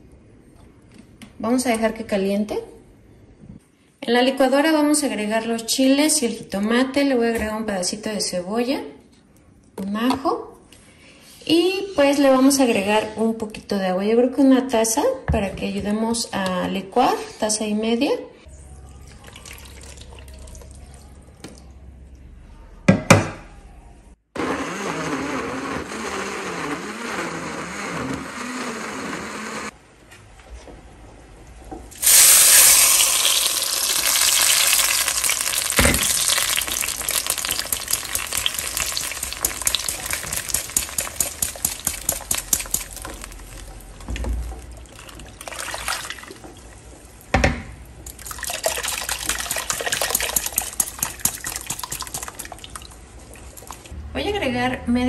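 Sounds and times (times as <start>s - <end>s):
countertop blender running: 24.4s - 29.8s
sauce sizzling in hot oil: 32.0s - 43.9s.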